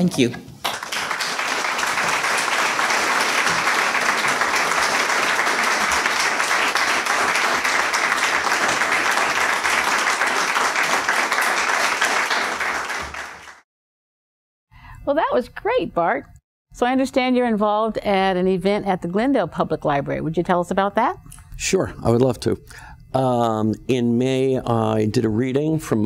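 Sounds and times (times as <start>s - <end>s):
audience applauding: 0.6s - 13.6s.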